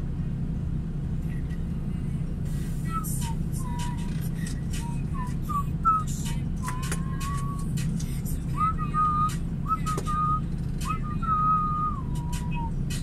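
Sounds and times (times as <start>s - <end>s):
truck engine idling: 0.0s - 13.0s
person whistling a slow tune: 2.8s - 7.7s, 8.5s - 13.0s.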